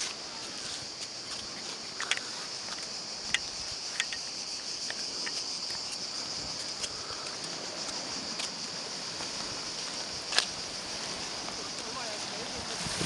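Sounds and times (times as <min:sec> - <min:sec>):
cicadas buzzing: 0:00.0 - 0:13.0.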